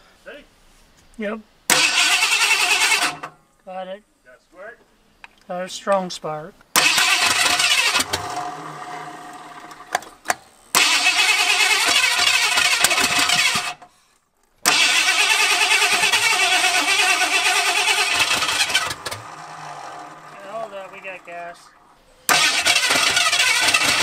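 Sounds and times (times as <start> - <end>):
engine cranking by starter: 1.7 - 3.4, 6.7 - 13.9, 14.6 - 24.0.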